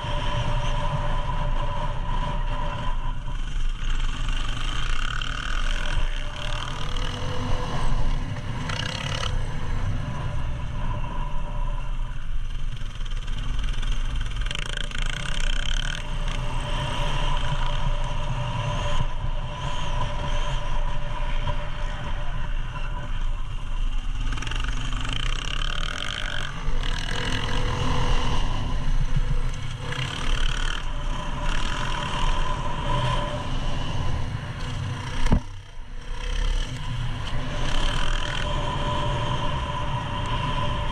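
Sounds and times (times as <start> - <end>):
dirt bike engine revving: 0.0 - 10.4, 24.1 - 39.8.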